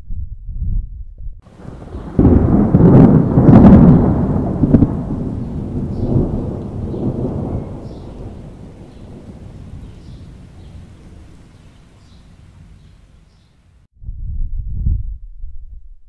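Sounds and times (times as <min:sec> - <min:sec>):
deep thunder rumble: 0:00.3 - 0:13.4
thunderclap: 0:01.5 - 0:13.2
thunder crackles: 0:01.5 - 0:15.6.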